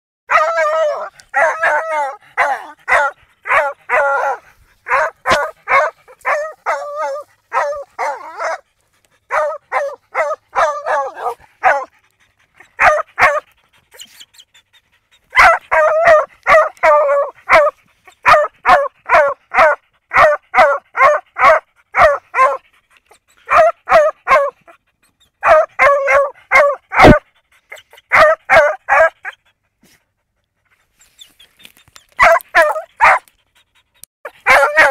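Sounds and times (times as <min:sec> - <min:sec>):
dog barking excitedly: 0:00.3 - 0:14.2, 0:15.2 - 0:22.7, 0:23.4 - 0:24.8, 0:25.4 - 0:29.4, 0:32.0 - 0:33.3, 0:34.2 - 0:34.9.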